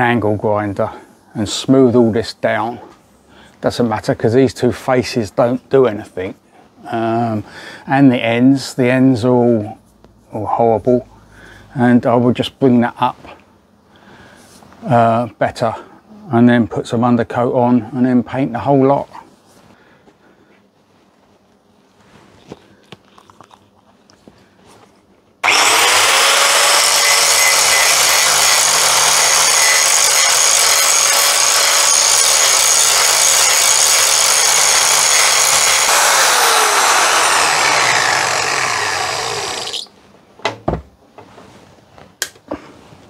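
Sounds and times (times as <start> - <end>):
angle grinder grinding metal: 25.4 - 39.9.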